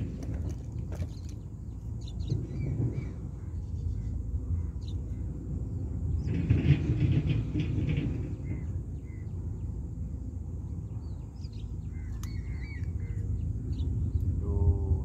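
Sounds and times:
low outdoor rumble: 0:00.0 - 0:15.0
bird chirps: 0:10.7 - 0:14.4.

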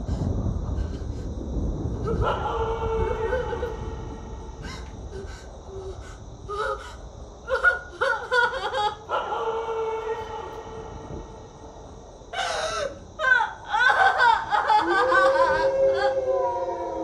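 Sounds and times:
person crying: 0:07.5 - 0:09.1, 0:12.4 - 0:16.1.

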